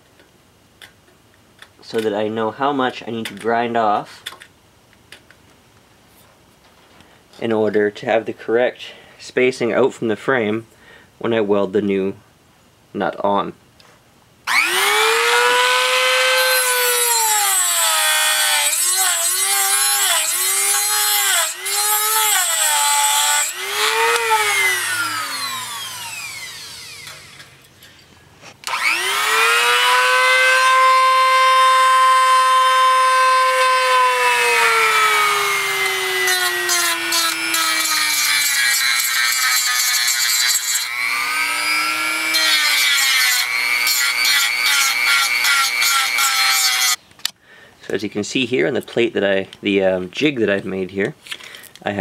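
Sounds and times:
rotary tool grinding metal: 14.5s - 27.8s, 28.6s - 47.0s.

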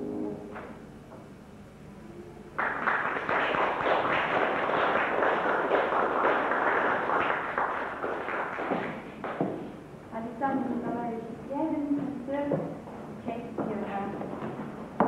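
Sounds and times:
audience applauding: 2.6s - 9.8s.

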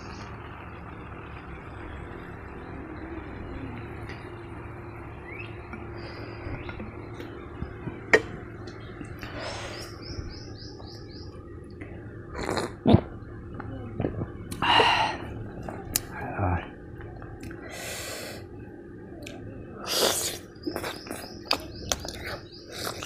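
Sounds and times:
small bird chirping: 1.9s - 11.8s, 19.4s - 23.0s.

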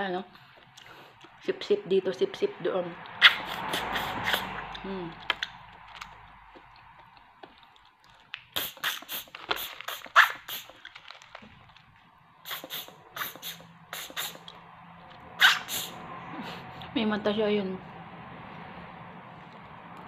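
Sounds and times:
snails sucked out by mouth: 3.2s - 4.8s, 8.5s - 11.0s, 12.4s - 14.5s, 15.4s - 16.0s.

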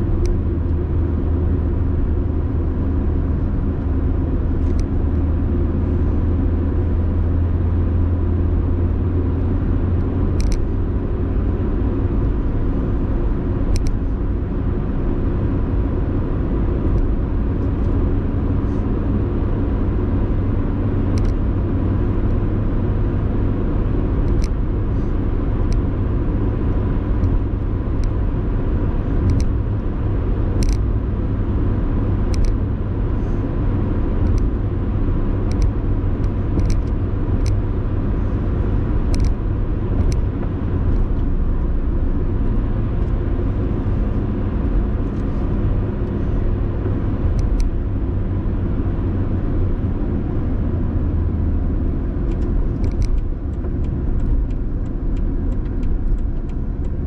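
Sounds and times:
car road and engine rumble: 0.0s - 57.0s
sharp clicks and rattles: 29.2s - 29.6s, 34.2s - 34.6s, 35.4s - 37.6s, 39.0s - 39.4s, 52.2s - 57.0s.

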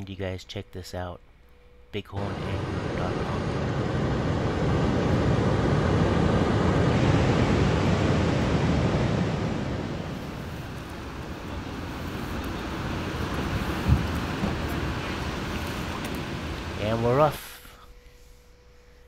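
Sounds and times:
wind buffeting microphone: 2.4s - 16.8s
river water rushing: 6.1s - 16.9s.

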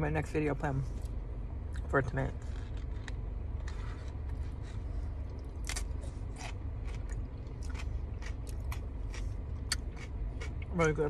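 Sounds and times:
steady low hum: 0.0s - 11.0s
chewing crisp salad: 2.5s - 11.0s.

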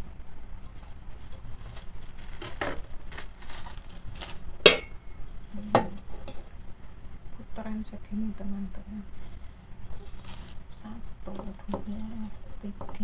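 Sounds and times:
plastic bag rustling: 0.6s - 6.9s, 9.0s - 12.6s
metal bowl clanking: 4.7s - 5.0s.

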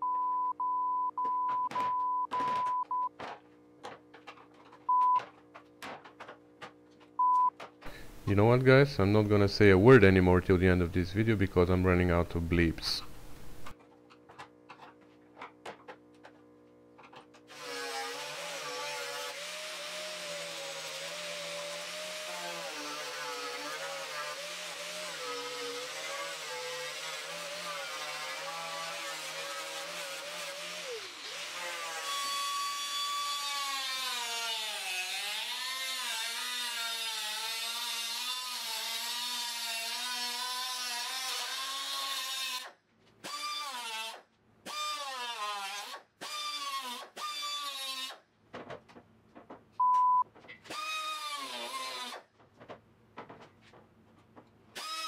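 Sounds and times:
angle grinder sanding metal: 17.5s - 42.7s, 50.8s - 52.2s.

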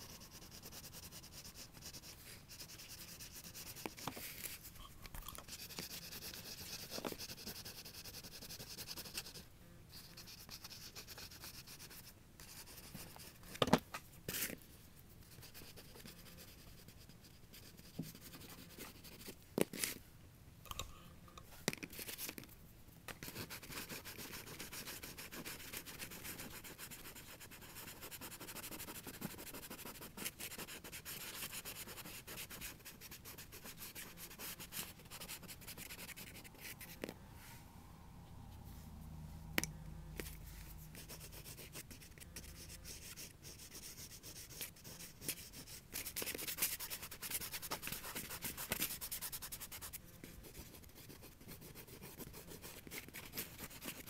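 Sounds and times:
pastel scraping on paper: 5.4s - 9.4s, 23.2s - 37.1s, 40.2s - 54.0s.

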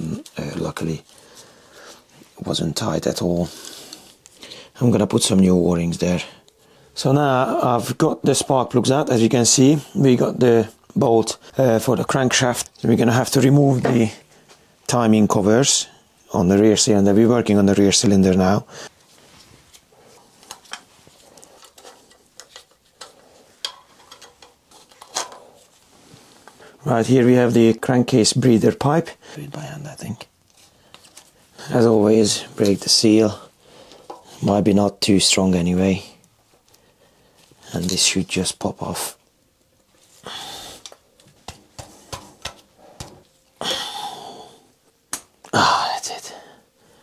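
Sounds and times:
soft rubbing: 18.9s - 23.6s
small clicks and knocks: 20.4s - 25.4s.

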